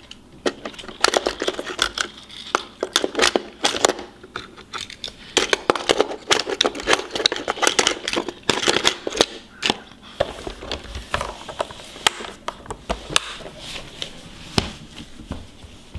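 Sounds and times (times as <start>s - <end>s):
toy cars clacking against plastic: 0.0s - 10.8s.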